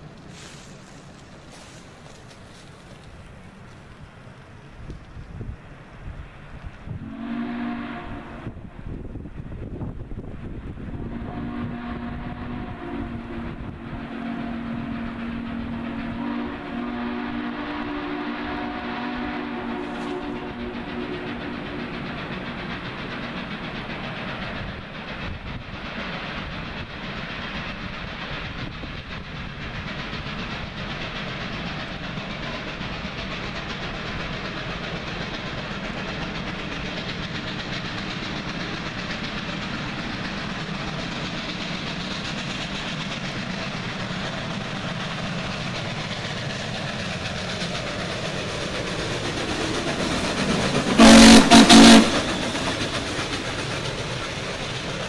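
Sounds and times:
steam locomotive working uphill: 0.0s - 55.0s
loud steam whistle blast: 7.0s - 8.6s, 10.9s - 22.0s, 50.9s - 52.6s.

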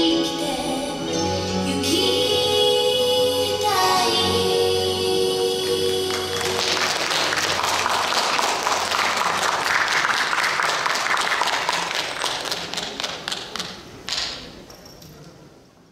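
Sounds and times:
audience applauding: 5.9s - 14.5s.

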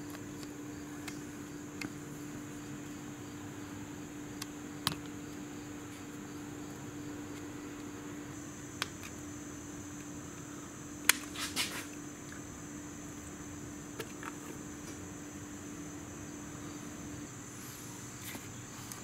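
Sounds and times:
high-pitched hiss: 8.1s - 19.0s.

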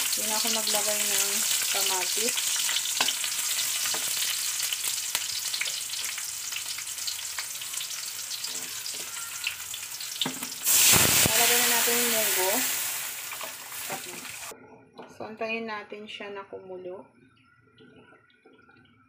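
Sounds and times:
garlic and onion sizzling in oil: 0.0s - 14.5s
broth poured into hot wok hissing: 10.6s - 14.5s.

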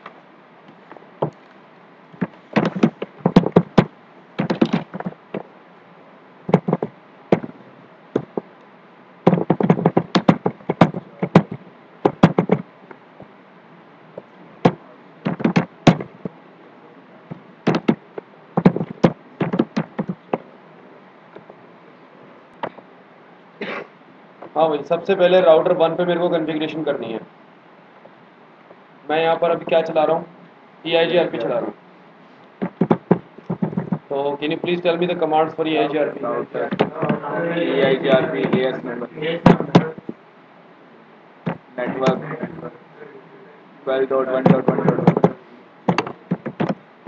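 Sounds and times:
keyboard typing: 2.2s - 5.4s, 6.5s - 7.5s, 9.3s - 12.6s, 15.2s - 16.4s, 17.6s - 20.4s, 32.6s - 34.0s, 44.5s - 46.8s.

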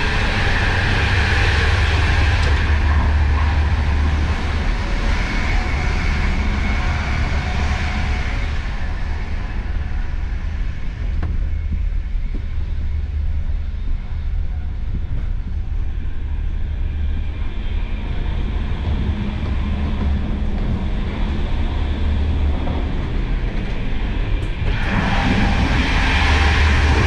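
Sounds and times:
low hum: 0.0s - 27.0s
train running at speed: 0.0s - 27.0s.

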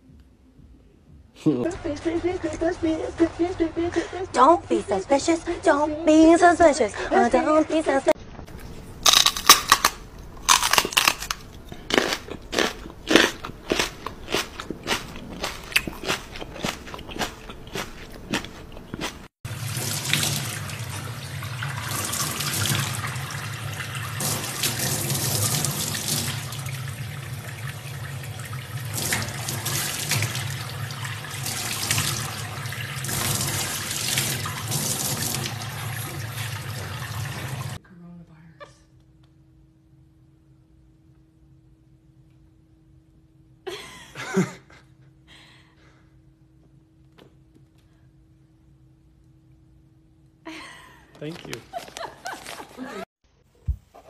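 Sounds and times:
sharp crunching clicks: 9.0s - 19.1s.

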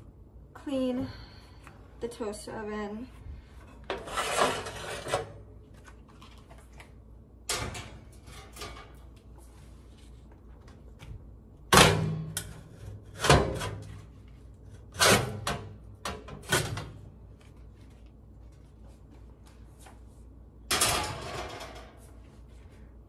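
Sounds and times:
metal tray scraping and clanking: 3.7s - 5.4s.

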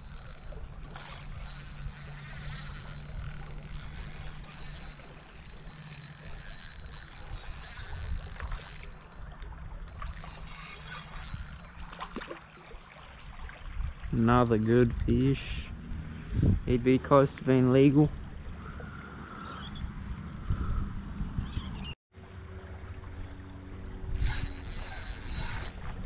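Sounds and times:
fishing reel winding: 0.0s - 15.7s, 24.2s - 25.9s
reel ticking: 0.0s - 15.8s, 24.1s - 26.0s
wind on microphone: 13.3s - 16.9s, 19.7s - 22.0s.

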